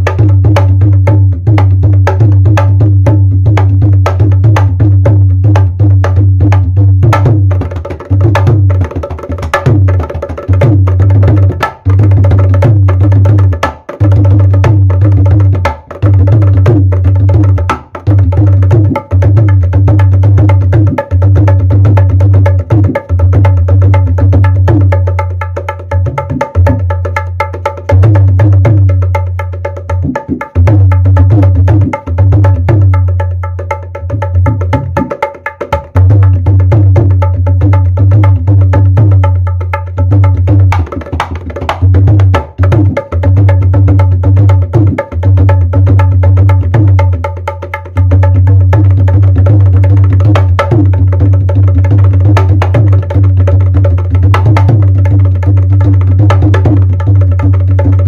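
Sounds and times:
dholak drum rhythm: 0:00.0 - 0:58.0.

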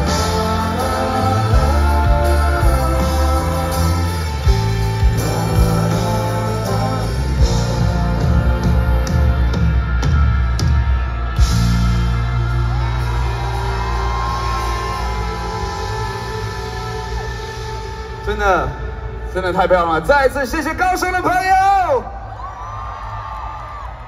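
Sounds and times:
lead singer singing: 0:00.0 - 0:11.3, 0:12.8 - 0:18.2
live rock band: 0:00.0 - 0:21.3.

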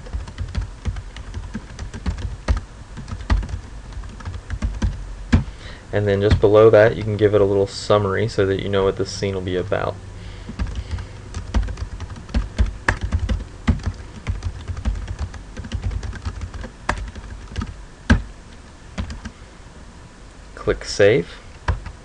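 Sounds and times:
typing on computer keyboard: 0:00.0 - 0:05.0, 0:10.5 - 0:18.2, 0:19.0 - 0:19.3.

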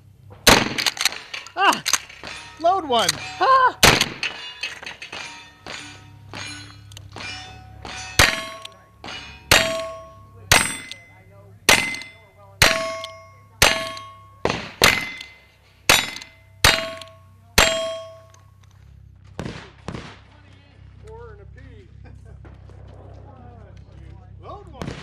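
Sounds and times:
steel plate target ringing: 0:00.5 - 0:18.6.

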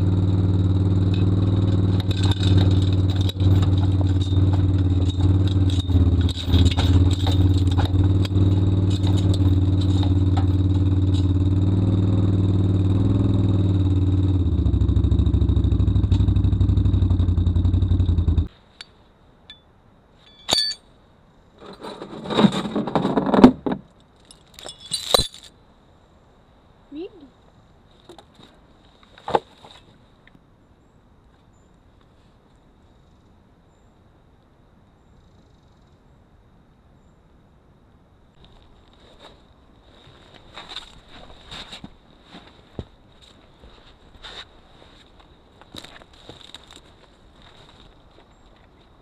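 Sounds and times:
trailer frame clattering: 0:00.0 - 0:12.2, 0:20.3 - 0:20.8
atv engine running: 0:00.0 - 0:18.5
metal chain jingling and clinking: 0:01.2 - 0:11.4, 0:20.3 - 0:20.8, 0:24.3 - 0:25.5.

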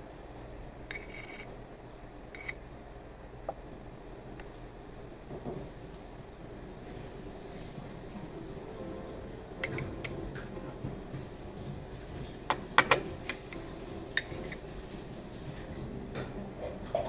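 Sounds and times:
low room hum: 0:00.0 - 0:17.0
tableware clinking: 0:09.6 - 0:10.2, 0:12.5 - 0:13.6.

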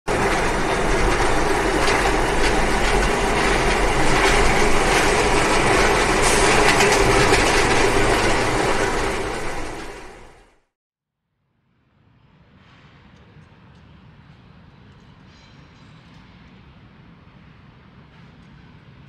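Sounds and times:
train wheel clatter: 0:00.1 - 0:10.6
train rail noise: 0:00.1 - 0:10.7, 0:12.5 - 0:19.0.

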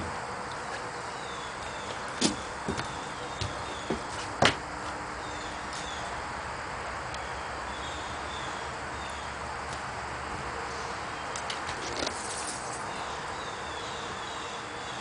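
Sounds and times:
outdoor background hiss: 0:00.0 - 0:15.0
small birds chirping: 0:00.5 - 0:04.4, 0:05.2 - 0:06.2, 0:11.0 - 0:15.0.

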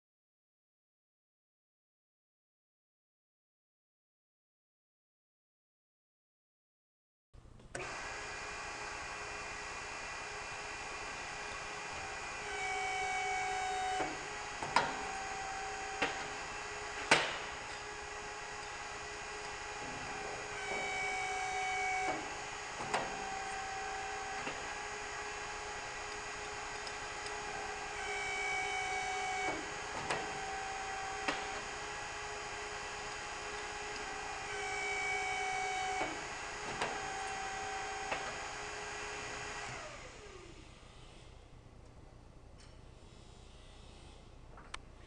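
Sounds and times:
hydraulic pump humming: 0:07.7 - 0:41.5
pump motor winding down: 0:07.8 - 0:41.2.

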